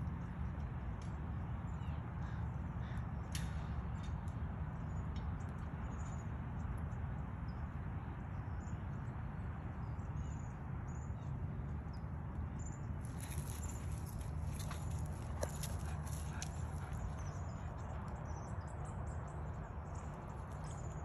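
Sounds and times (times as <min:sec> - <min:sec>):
small birds chirping: 0:12.6 - 0:21.0.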